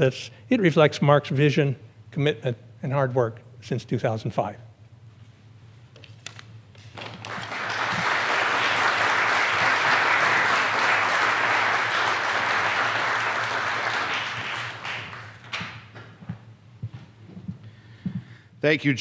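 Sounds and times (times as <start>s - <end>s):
audience applauding: 7.0s - 16.1s.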